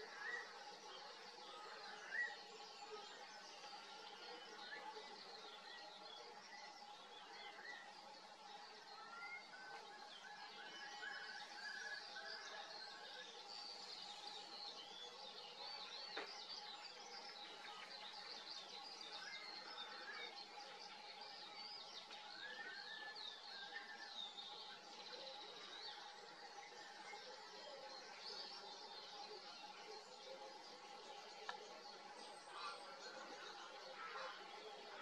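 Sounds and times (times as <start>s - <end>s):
small birds chirping: 0.0s - 35.0s.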